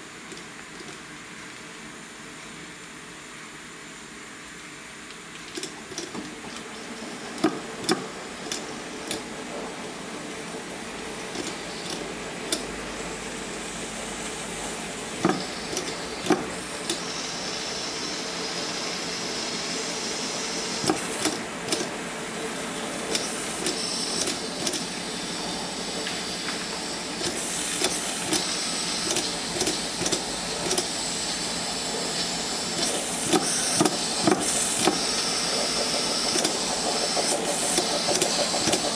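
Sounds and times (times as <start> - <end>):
steam hissing: 11.1 - 38.9
flywheel clicks and knocks: 15.2 - 17.0, 20.8 - 21.9, 23.1 - 24.9, 27.2 - 31.0.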